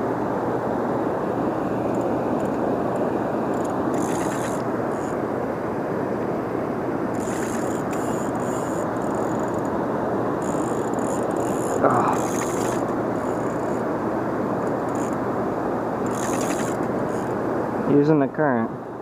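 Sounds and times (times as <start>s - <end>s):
fishing reel whirring: 3.5s - 5.2s, 7.1s - 13.8s, 14.6s - 15.2s, 16.0s - 17.4s.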